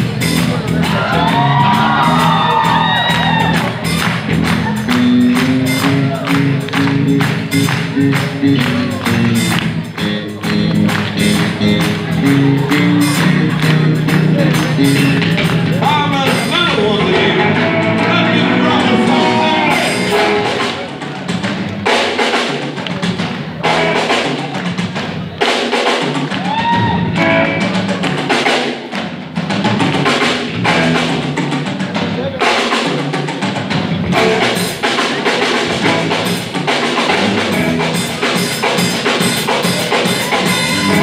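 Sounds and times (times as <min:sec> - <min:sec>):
bending lead guitar lines: 0:00.0 - 0:21.1, 0:26.7 - 0:28.0, 0:33.7 - 0:41.0
live blues band playing: 0:00.0 - 0:41.0.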